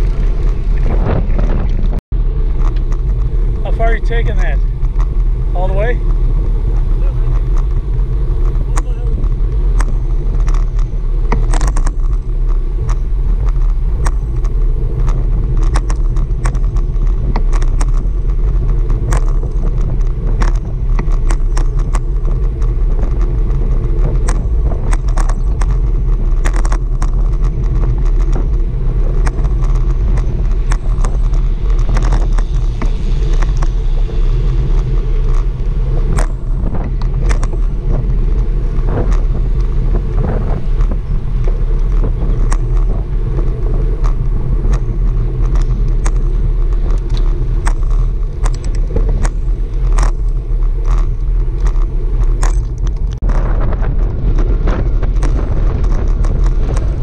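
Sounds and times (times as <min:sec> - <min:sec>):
wind and road rumble: 0:00.0 - 0:57.0
irregular clicks and knocks: 0:07.3 - 0:33.8.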